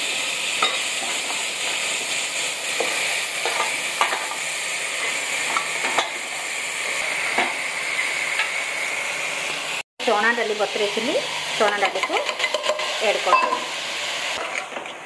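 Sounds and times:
vegetables sizzling in oil: 0.0s - 15.0s
spoon scraping a pot: 11.2s - 13.7s.

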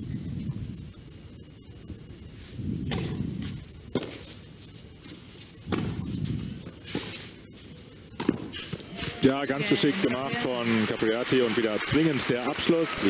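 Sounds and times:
tennis ball struck by racket: 5.7s - 6.1s
murmur of stadium crowd: 8.8s - 13.0s.

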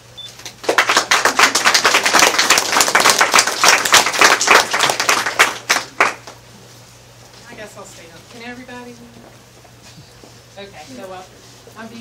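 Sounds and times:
people clapping in a room: 0.4s - 6.6s.

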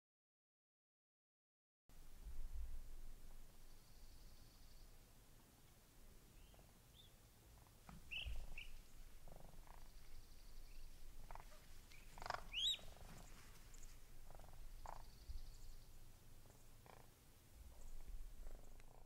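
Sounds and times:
cranes purring trills: 7.6s - 13.6s, 14.2s - 15.7s, 16.4s - 19.0s
crane chicks peeping: 7.7s - 15.7s.

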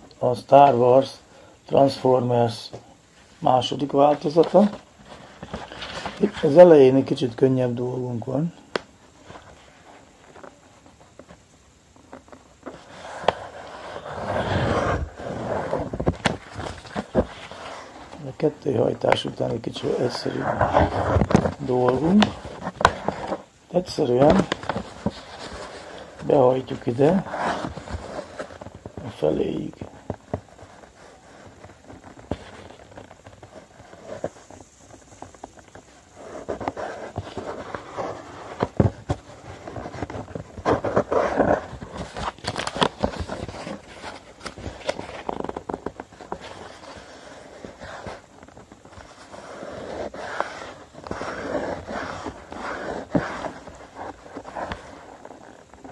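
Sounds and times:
paper rustling: 3.6s - 6.7s, 12.0s - 55.9s.

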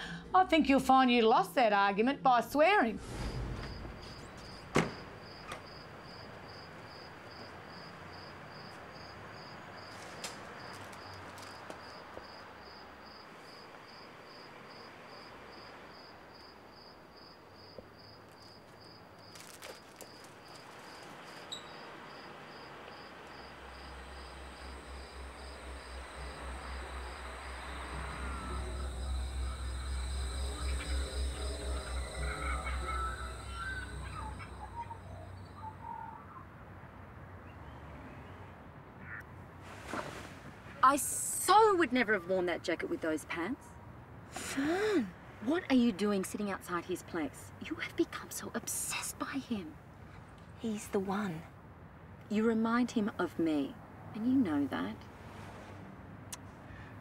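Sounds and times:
faint night-time hiss: 2.6s - 37.0s, 39.0s - 57.0s
cricket chirping: 3.0s - 36.5s
low rhythmic throb: 23.9s - 35.3s.

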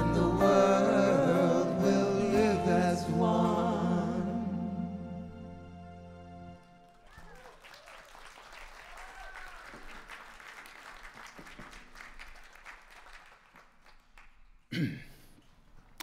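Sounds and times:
audience applauding: 6.6s - 14.7s.

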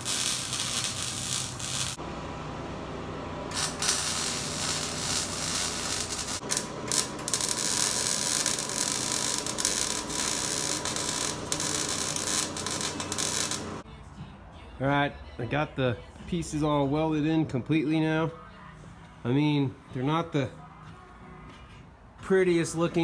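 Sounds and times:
arc welding crackling sizzle: 0.0s - 2.0s, 3.5s - 13.8s.

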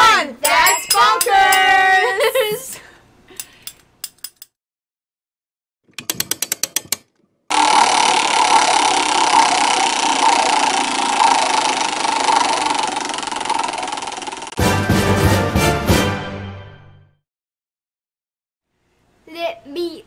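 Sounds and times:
randomizer rattling whir: 7.5s - 14.6s.

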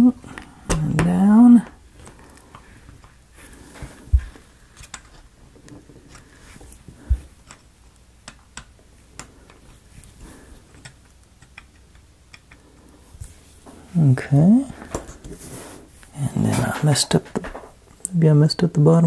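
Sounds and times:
dull thumps: 3.7s - 4.5s
wooden pieces clicking and tapping: 3.8s - 13.0s.

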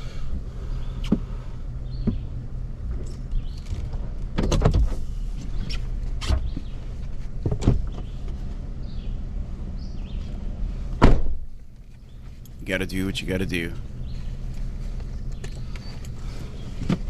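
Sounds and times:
pickup truck idling: 0.0s - 4.3s, 8.0s - 17.0s
knocks of driver shifting: 0.3s - 9.1s, 13.8s - 17.0s
car door shutting with a thud: 1.9s - 2.3s, 3.4s - 6.7s, 7.4s - 8.2s, 11.0s - 11.5s.

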